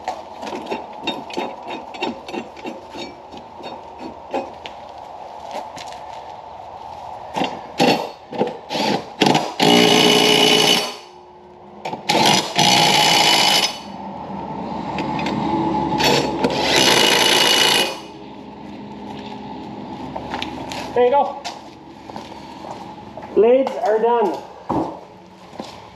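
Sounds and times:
power drill tightening bolts: 11.9s - 13.9s.

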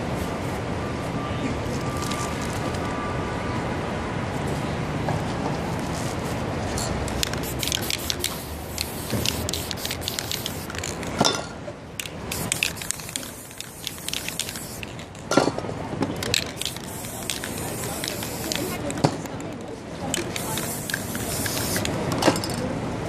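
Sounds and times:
spray paint can hissing: 7.1s - 11.1s, 12.0s - 15.2s, 16.2s - 19.0s, 20.1s - 22.0s.

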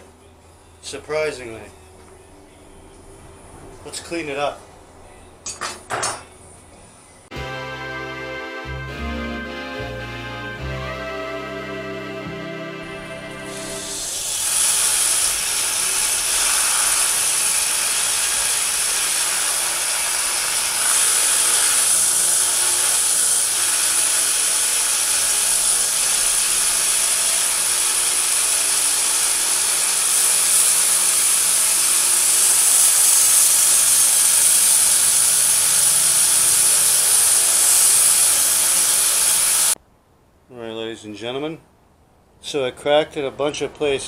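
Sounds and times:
belt grinder grinding steel: 13.0s - 39.8s.

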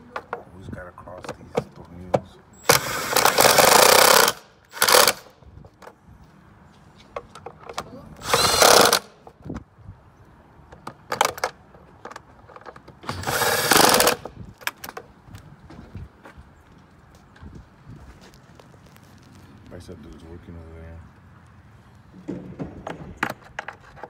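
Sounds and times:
cordless drill driving screws: 2.6s - 5.3s, 8.2s - 9.1s, 13.0s - 14.3s.

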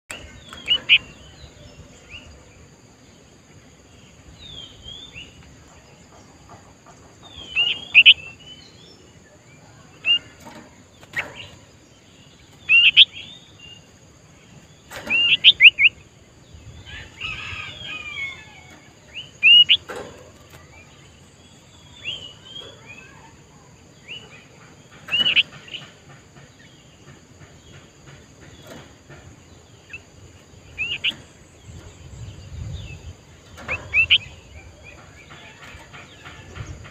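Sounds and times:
bird whistled calls: 12.7s - 13.2s, 15.1s - 16.0s, 19.4s - 19.8s, 33.7s - 34.4s.

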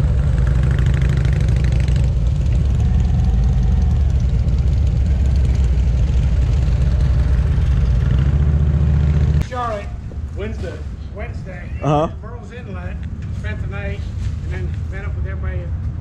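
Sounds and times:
motorcycle engine rumbling: 0.0s - 9.4s.

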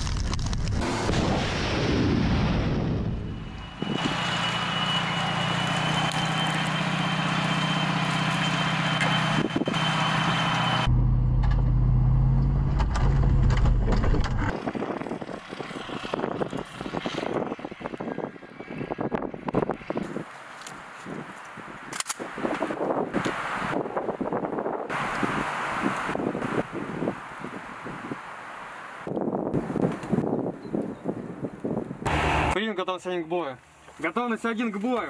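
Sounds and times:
missile blast rumble: 0.2s - 4.0s
thin high whine: 2.8s - 11.2s
heavy diesel engine running: 3.0s - 16.6s, 32.1s - 32.6s.

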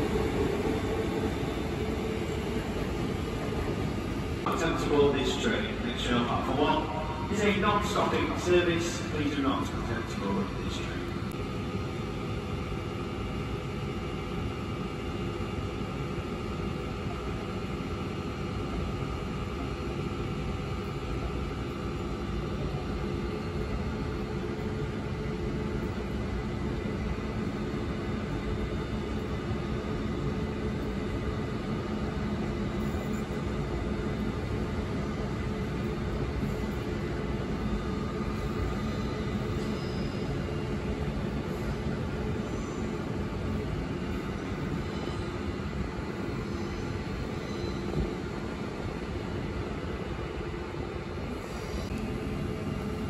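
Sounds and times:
train wheels rumbling: 0.0s - 10.4s.

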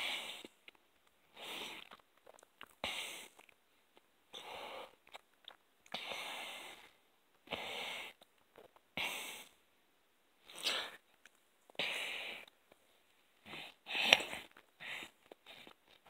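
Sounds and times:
wet chewing clicks: 1.8s - 4.1s
heavy breathing through nose: 6.0s - 8.2s.

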